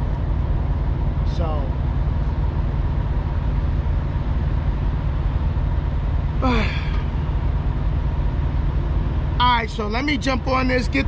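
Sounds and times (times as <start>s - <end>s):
diesel truck engine idling: 0.0s - 11.0s
thin steady hum: 0.0s - 11.0s
man sighing: 6.4s - 7.1s.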